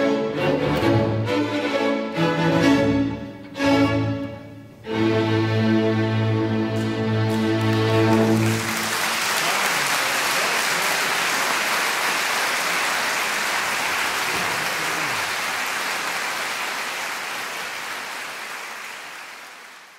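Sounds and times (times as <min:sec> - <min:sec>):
audience applauding: 0:07.3 - 0:19.9.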